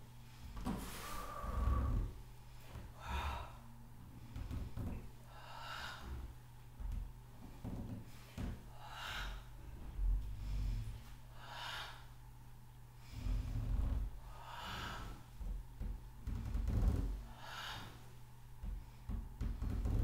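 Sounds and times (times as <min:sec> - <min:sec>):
steady low hum: 0:00.0 - 0:20.0
woman breathing hard: 0:00.4 - 0:06.4, 0:07.6 - 0:12.2, 0:13.0 - 0:15.4, 0:17.2 - 0:19.9.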